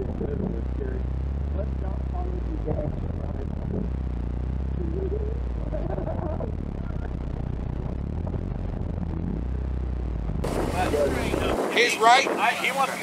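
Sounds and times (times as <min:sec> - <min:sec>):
vehicle engine idling: 0:00.0 - 0:11.8.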